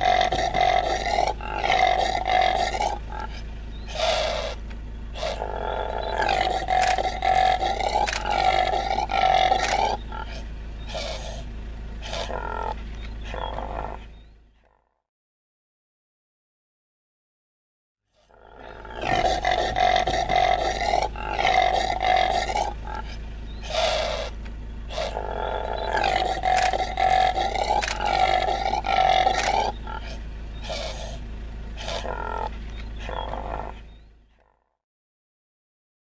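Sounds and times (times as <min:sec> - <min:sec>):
animal breaths: 0:00.0 - 0:12.4, 0:18.2 - 0:34.1
antelope roaring grunting calls: 0:00.0 - 0:14.3, 0:18.2 - 0:34.5.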